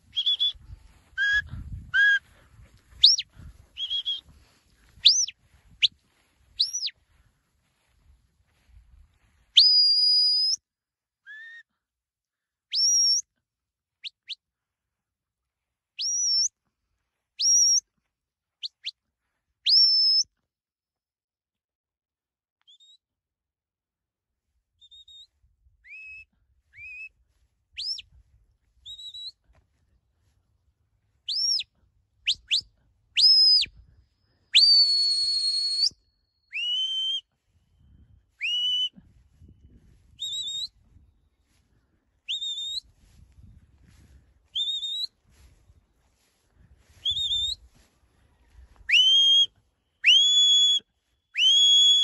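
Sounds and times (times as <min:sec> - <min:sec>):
person whistling commands: 0:00.2 - 0:00.6, 0:01.2 - 0:02.2, 0:03.8 - 0:04.2, 0:34.6 - 0:37.3, 0:38.4 - 0:39.0, 0:48.9 - 0:50.8, 0:51.4 - 0:52.0.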